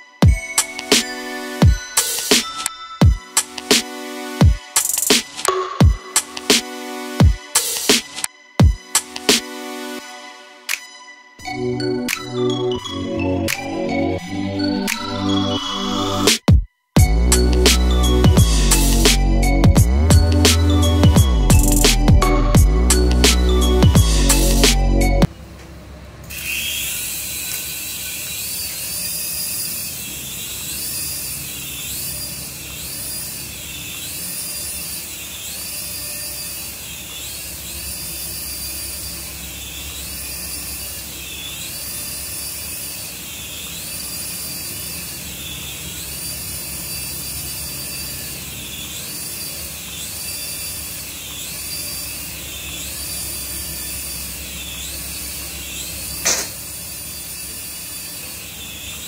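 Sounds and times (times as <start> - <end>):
toy helicopter rotors whirring: 26.3 - 59.0.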